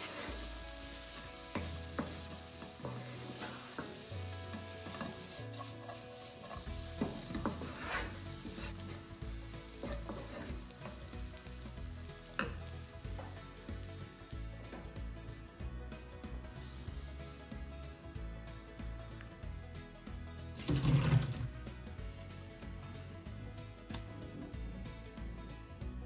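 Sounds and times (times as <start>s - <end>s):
wooden spatula scraping pan: 0.0s - 11.7s
vegetables sizzling in oil: 0.0s - 14.8s.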